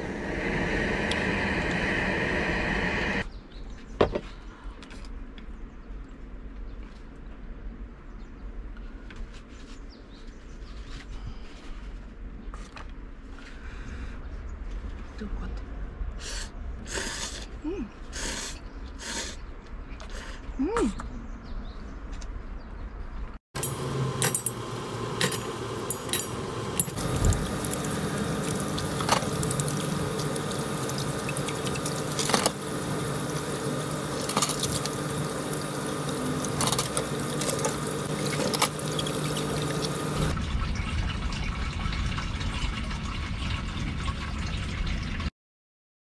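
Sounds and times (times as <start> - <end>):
steady hum: 0.0 - 3.2, 23.6 - 40.4
water running from tap: 23.6 - 40.4
water pouring into tank: 27.0 - 45.3.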